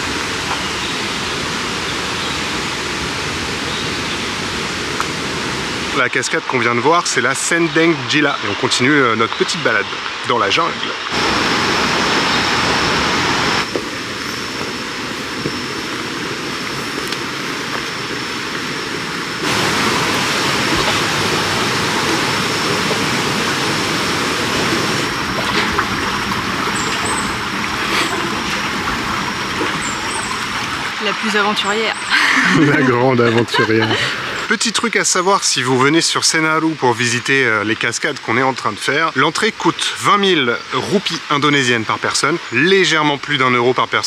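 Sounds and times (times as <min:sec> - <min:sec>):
rushing water: 0:00.0 - 0:44.0.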